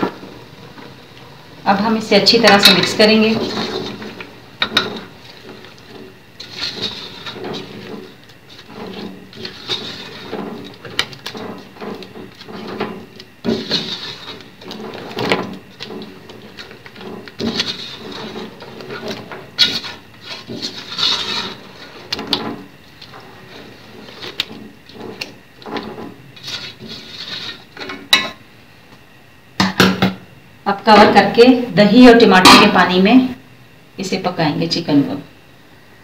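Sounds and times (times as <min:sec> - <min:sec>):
spatula scraping metal pot: 0:02.2 - 0:28.4.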